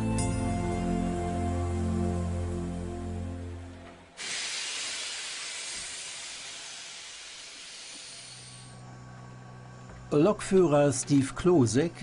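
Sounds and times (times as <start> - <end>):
steam hissing from locomotive: 4.2 - 8.8.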